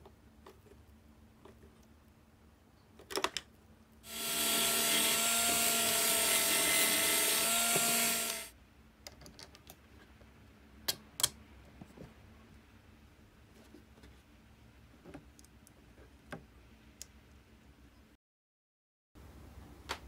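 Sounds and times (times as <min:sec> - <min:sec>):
electric drill boring through plastic: 0:04.1 - 0:08.5.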